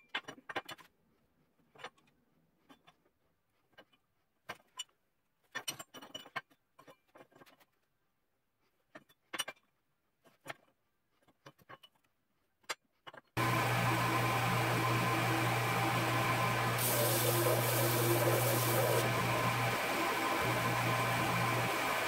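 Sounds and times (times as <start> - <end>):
power tool running: 13.4 - 22.0.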